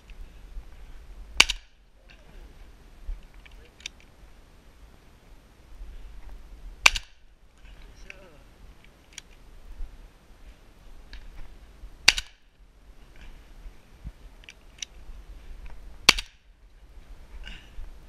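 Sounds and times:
shotgun shots: 6.8 - 7.2, 12.0 - 12.4.

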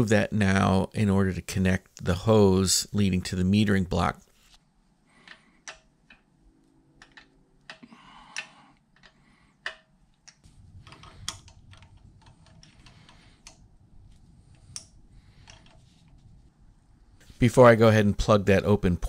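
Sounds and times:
low rumble: 10.4 - 17.2.

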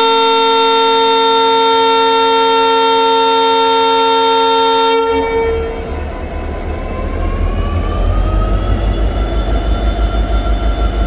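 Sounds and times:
locomotive horn blast: 0.0 - 6.0
diesel engine throttling up: 5.5 - 11.0.

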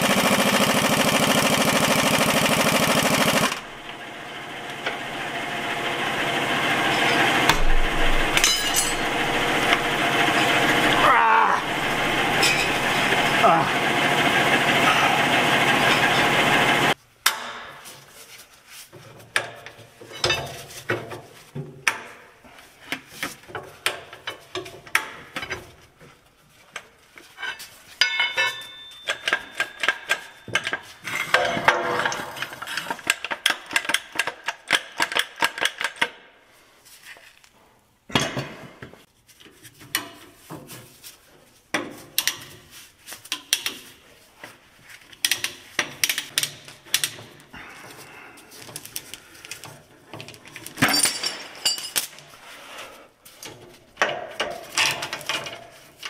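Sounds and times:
metal tools clinking: 8.0 - 9.8, 12.0 - 13.3, 27.4 - 32.9, 50.2 - 52.3.

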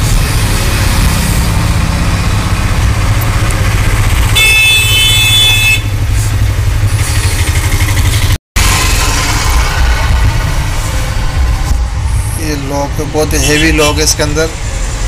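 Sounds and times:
vehicle engine rumbling: 0.0 - 15.0
high-pitched horn: 4.4 - 6.0.

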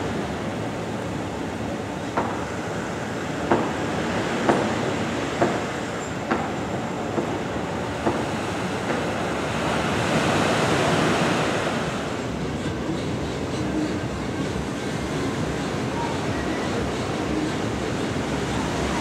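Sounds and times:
ocean surf washing on sand: 0.0 - 12.4.

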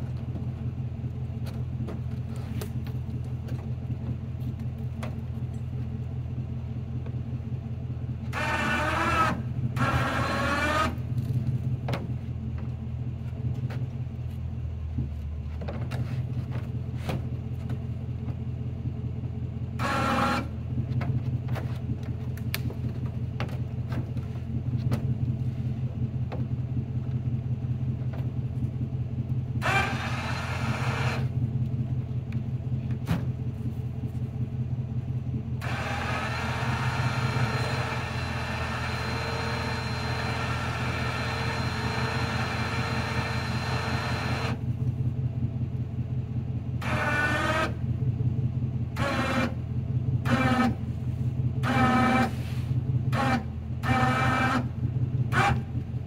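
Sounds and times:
truck engine idling: 0.0 - 56.0
clicks and knocks handling logs: 1.3 - 6.0, 11.1 - 18.5, 20.2 - 27.2, 27.9 - 28.8.

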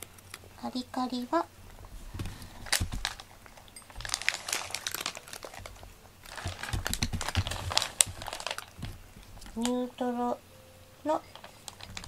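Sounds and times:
cat crunching dry kibble: 1.7 - 9.7, 11.3 - 12.0.

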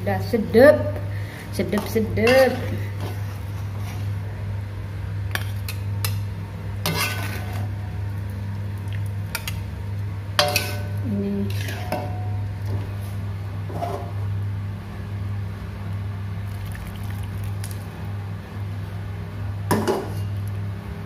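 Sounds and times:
steady low hum: 0.0 - 21.0
metal ladle scraping a wok: 6.8 - 7.8, 10.4 - 12.3.

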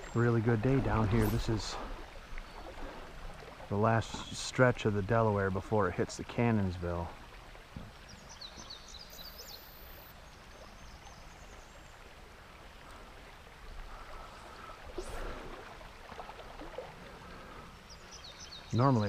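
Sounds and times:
bird chirping: 8.1 - 10.1.

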